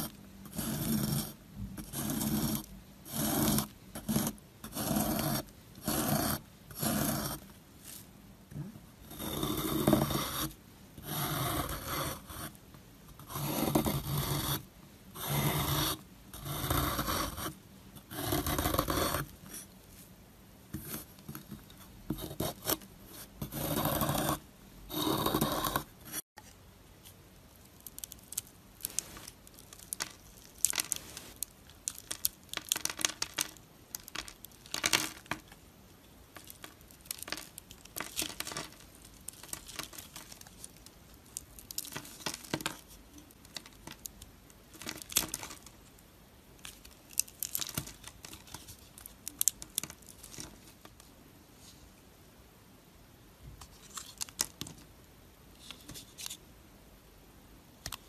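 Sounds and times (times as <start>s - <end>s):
knife cutting dry soap: 0.0s - 7.5s, 9.1s - 12.6s, 13.2s - 19.7s, 20.8s - 26.2s.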